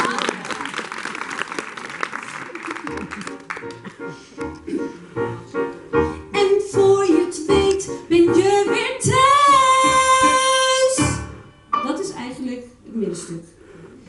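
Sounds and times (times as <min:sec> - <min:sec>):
woman singing into microphone: 0:06.3 - 0:11.2.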